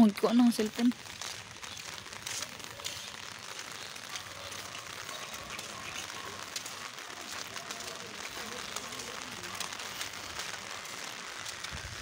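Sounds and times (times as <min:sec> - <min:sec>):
rain falling: 0:00.0 - 0:12.0
distant voices: 0:02.4 - 0:11.7.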